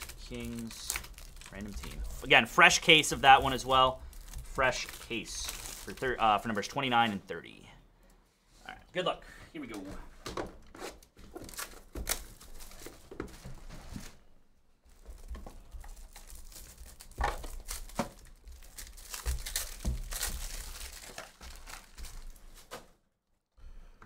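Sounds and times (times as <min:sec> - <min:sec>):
packaging crinkling and tearing: 0:00.0 - 0:06.6, 0:11.4 - 0:13.3, 0:14.9 - 0:22.8
cardboard knocks and rustling: 0:12.8 - 0:14.0.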